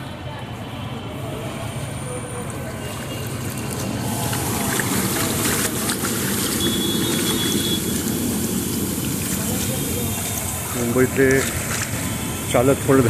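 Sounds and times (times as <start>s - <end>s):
floodwater splashing: 1.4s - 13.0s
vehicle engine running: 2.2s - 13.0s.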